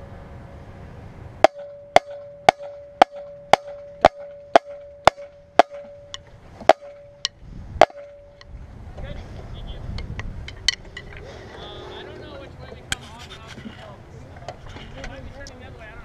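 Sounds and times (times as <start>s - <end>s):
snare drum ringing: 1.4s - 8.4s.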